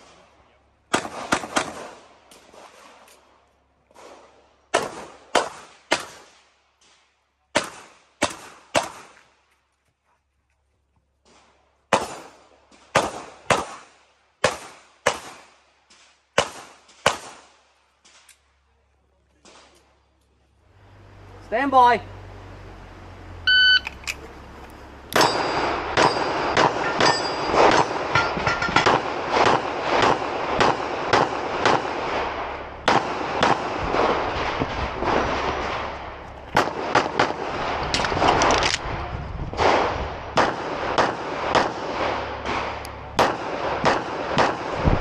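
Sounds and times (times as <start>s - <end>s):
rapid pistol shots: 0.9s - 2.0s, 4.0s - 6.3s, 7.6s - 9.2s, 11.9s - 15.5s, 16.4s - 17.5s, 25.2s - 28.1s, 28.8s - 36.0s, 36.6s - 38.6s, 39.6s - 45.0s
electronic timer beep: 23.5s - 23.9s
metallic ringing of steel targets: 25.2s - 29.0s.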